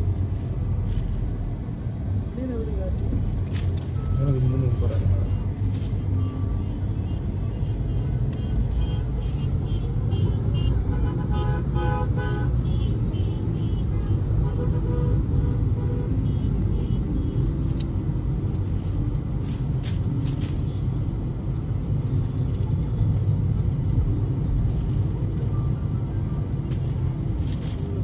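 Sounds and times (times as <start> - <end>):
heavy low rumble: 0.0 - 9.7, 17.3 - 22.9
sharp rattling bursts: 3.0 - 6.5, 17.3 - 21.0, 26.7 - 28.0.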